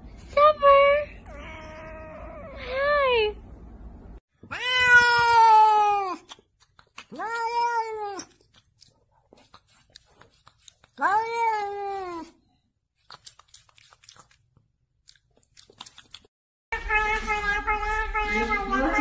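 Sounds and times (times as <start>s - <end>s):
cat meowing: 4.4s - 6.2s, 16.8s - 19.0s.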